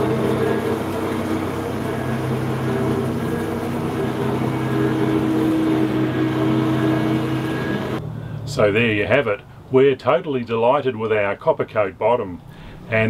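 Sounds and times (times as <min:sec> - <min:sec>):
steady mechanical drone: 0:00.0 - 0:09.7.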